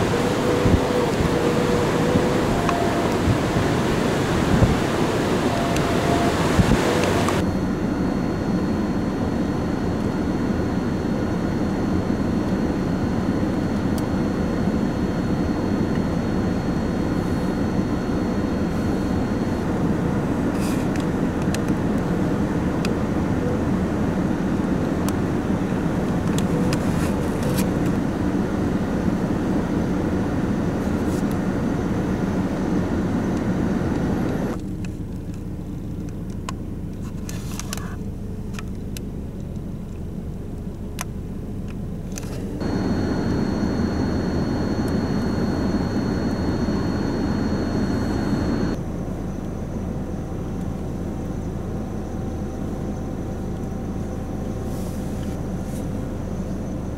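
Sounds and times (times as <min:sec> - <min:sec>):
blizzard wind blowing on microphone: 0:00.0 - 0:34.6.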